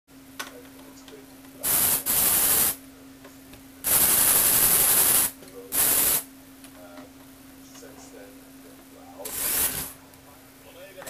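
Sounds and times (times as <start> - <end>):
toy motor and gears rattling: 9.2 - 9.9.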